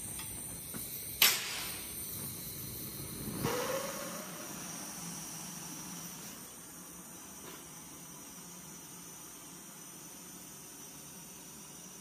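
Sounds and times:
gas torch hissing: 0.0s - 12.0s
brief rising whistle: 3.3s - 4.6s.

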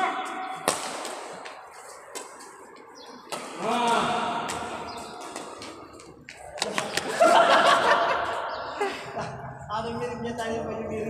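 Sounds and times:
racket striking shuttlecock: 0.2s - 2.4s, 3.2s - 5.8s.

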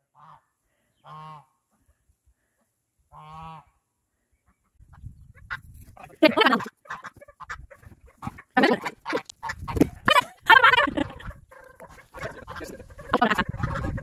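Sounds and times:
geese honking: 0.1s - 1.6s, 3.1s - 3.8s, 5.4s - 14.0s.

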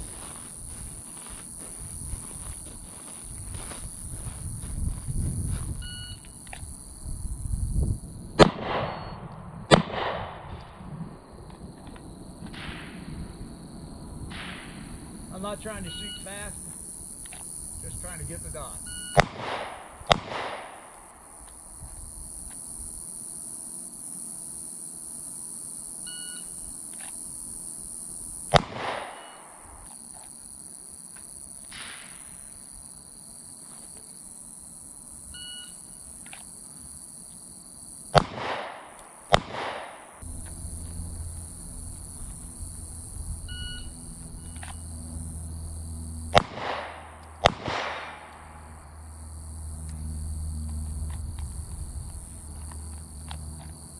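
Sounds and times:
pistol shots with echo: 8.4s - 10.5s, 19.2s - 21.0s, 28.5s - 29.6s, 38.2s - 40.2s, 46.3s - 48.7s.

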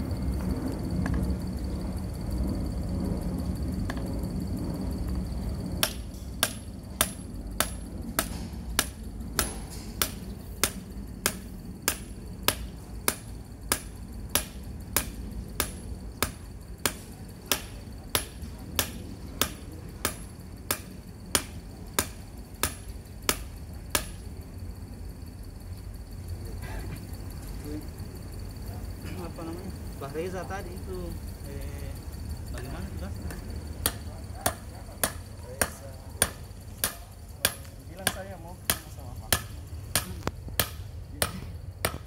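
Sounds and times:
hammer striking metal rod: 5.8s - 24.2s, 33.8s - 42.0s.

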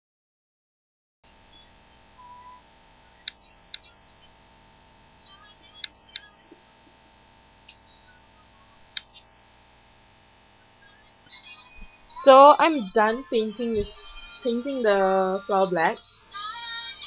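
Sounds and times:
faint steady hum: 1.3s - 17.0s
small birds chirping: 1.5s - 6.6s, 7.7s - 9.3s.

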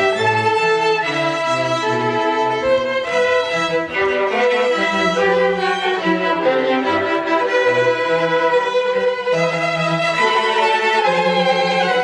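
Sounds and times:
string orchestra bowing chords: 0.0s - 12.0s.

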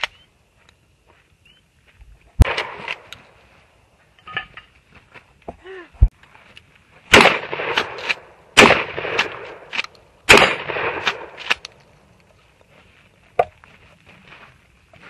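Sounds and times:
shotgun shots: 2.4s - 3.1s, 7.1s - 11.6s.

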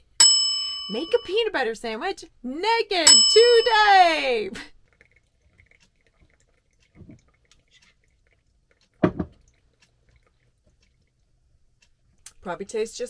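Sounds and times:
knock on cutting board: 9.0s - 9.4s.

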